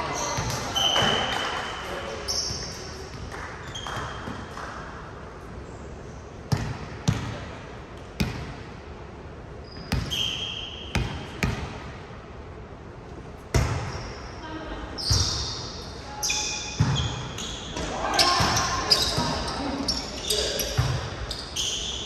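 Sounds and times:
sneaker squeaks on floor: 0.1s - 1.5s, 2.2s - 4.5s, 9.6s - 11.3s, 15.0s - 22.0s
ball bouncing with sharp slaps: 6.5s - 8.7s, 20.8s - 21.2s.

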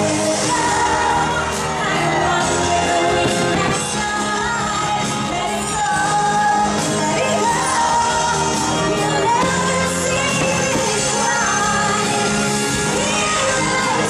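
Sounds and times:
voices singing held gliding melody: 0.0s - 14.0s.

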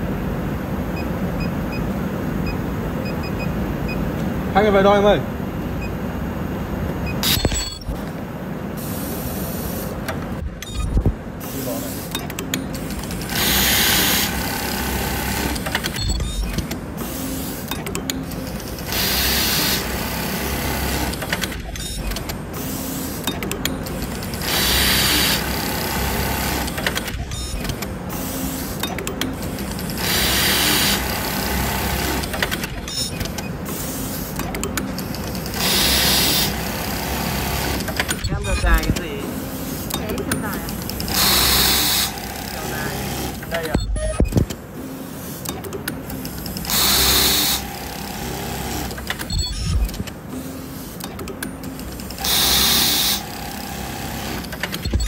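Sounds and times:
sharp machine clicks: 12.1s - 33.7s, 34.4s - 39.2s, 39.8s - 44.6s, 45.4s - 50.2s, 51.0s - 55.0s
sewing machine running: 12.8s - 16.4s, 18.2s - 21.6s, 23.8s - 27.1s, 29.6s - 32.8s, 35.1s - 38.8s, 40.7s - 43.6s, 46.3s - 49.1s, 51.8s - 54.8s.

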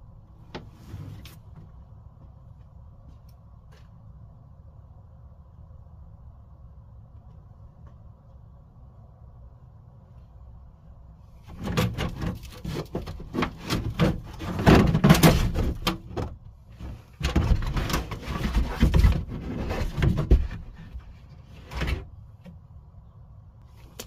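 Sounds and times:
carpet rustling and scraping on metal: 0.4s - 1.9s, 11.2s - 22.7s.

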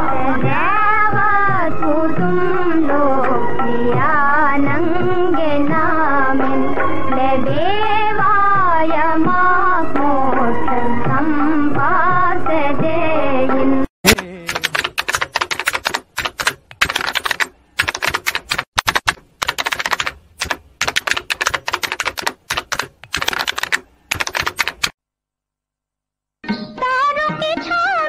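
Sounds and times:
rapid clicks and taps: 14.1s - 25.0s.

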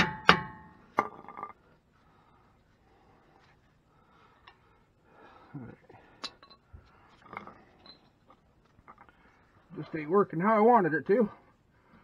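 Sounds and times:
faint metal clicks and clinks: 6.2s - 9.1s.

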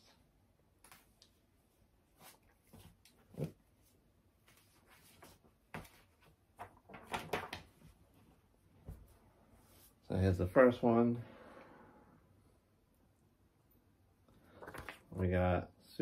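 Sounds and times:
paper rustling: 4.4s - 8.0s.

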